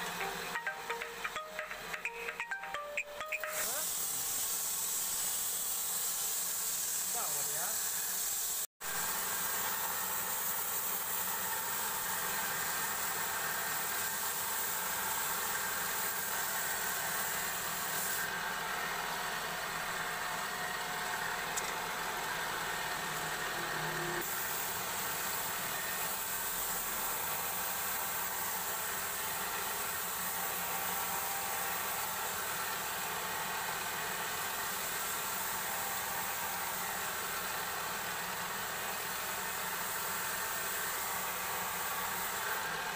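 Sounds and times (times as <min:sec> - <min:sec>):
bright hiss: 0:03.4 - 0:08.7.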